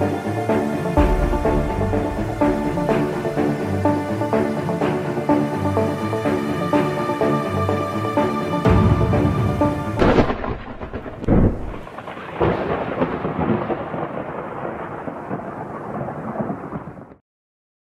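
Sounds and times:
rain: 0:00.0 - 0:17.2
rolling thunder rumble: 0:01.0 - 0:04.4, 0:08.7 - 0:17.2
thunderclaps: 0:01.0 - 0:04.4, 0:08.7 - 0:17.2.

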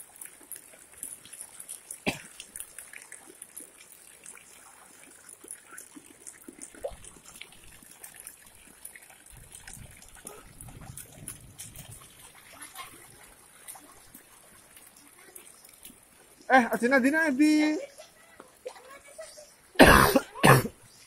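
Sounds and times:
bare feet splashing in water: 0:00.0 - 0:19.4
faint trickle of water: 0:00.0 - 0:21.0.

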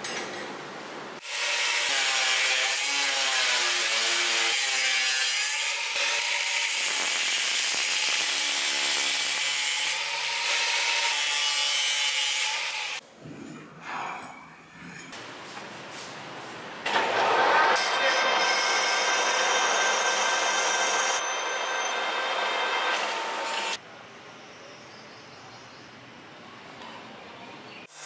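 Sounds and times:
grinder disc cutting metal: 0:01.2 - 0:13.0, 0:16.9 - 0:23.8.

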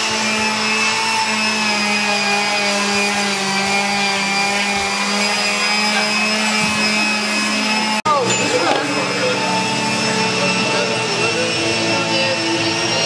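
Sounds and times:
electric power tool running on steel: 0:00.0 - 0:13.0.

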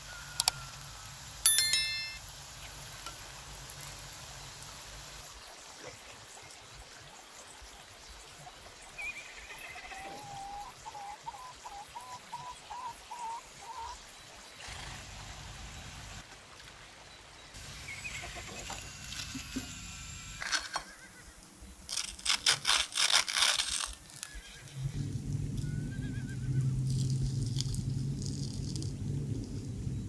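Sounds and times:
faint hiss: 0:00.0 - 0:21.9
crisp food crackling with fork: 0:21.9 - 0:24.4, 0:26.9 - 0:29.5
low steady hum: 0:24.7 - 0:30.0.

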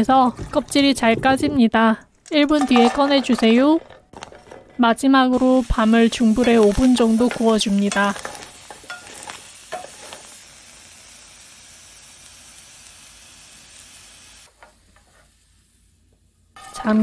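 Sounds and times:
chestnuts sizzling in a pan: 0:05.4 - 0:15.9.

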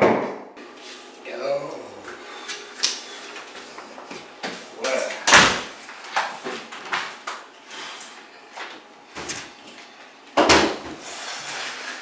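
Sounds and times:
kitchen items knocking and clattering: 0:10.4 - 0:11.0.

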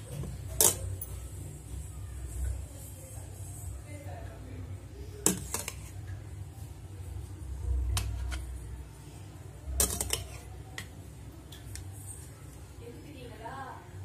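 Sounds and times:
spoon clinking against steel bowl: 0:09.8 - 0:10.5.

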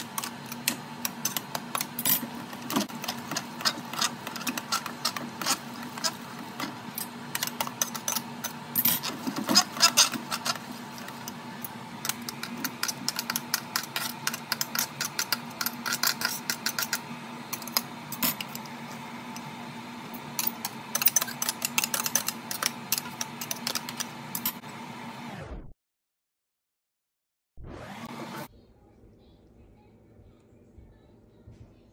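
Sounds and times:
food mill blade scraping and clicking: 0:00.0 - 0:19.5, 0:20.2 - 0:24.6.

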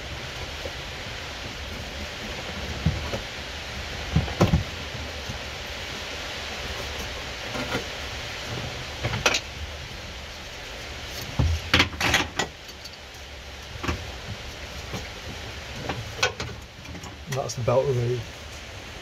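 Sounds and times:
steady hiss: 0:00.0 - 0:19.0
seat belt knocking and scraping on plastic: 0:02.4 - 0:03.3.

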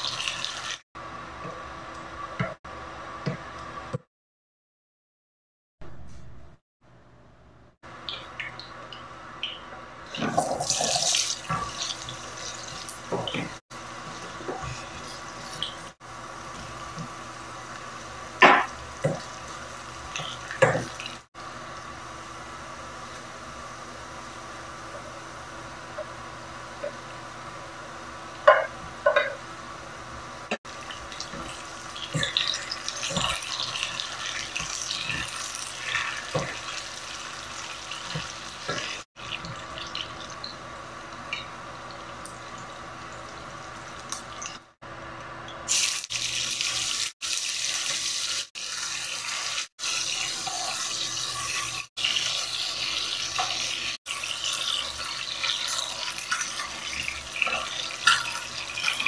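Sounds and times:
food sizzling in hot oil: 0:00.0 - 0:00.8, 0:10.1 - 0:21.3, 0:30.6 - 0:44.8, 0:45.7 - 0:59.0.

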